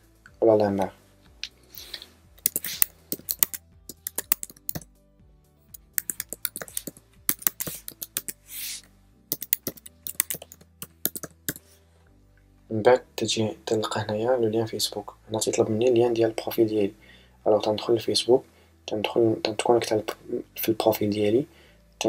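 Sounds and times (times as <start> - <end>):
quiet background music: 0.0 - 22.0
computer keyboard typing: 2.4 - 4.9, 5.7 - 8.4, 9.3 - 11.6.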